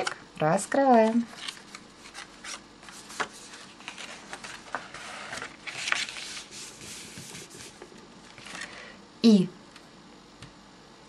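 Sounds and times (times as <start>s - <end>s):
paper rustling and crinkling: 0.7s - 8.8s.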